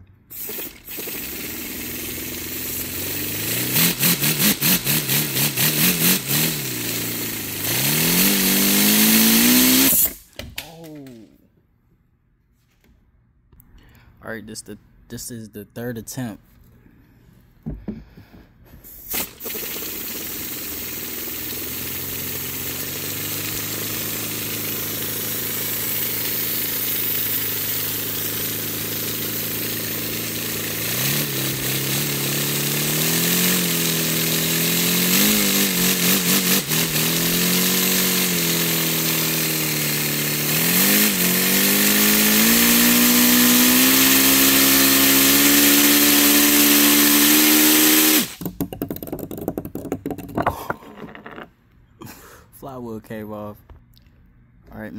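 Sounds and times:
rush of compressed air: 0.3 - 10.4, 18.8 - 30.3, 40.9 - 48.4.

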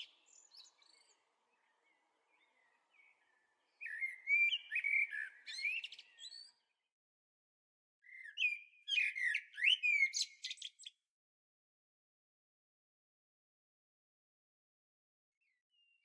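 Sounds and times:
songbird warbling: 3.8 - 6.2.

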